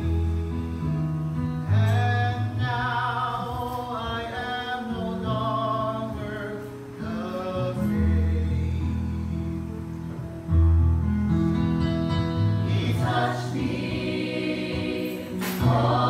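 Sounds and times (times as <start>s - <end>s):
mixed choir singing in harmony: 12.6s - 16.0s.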